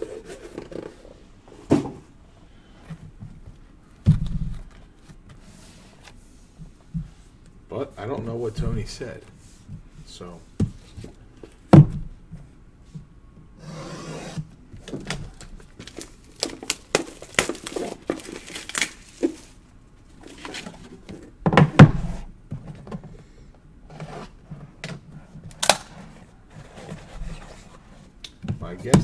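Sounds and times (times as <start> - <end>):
cardboard sleeve scraping: 13.6 - 14.4.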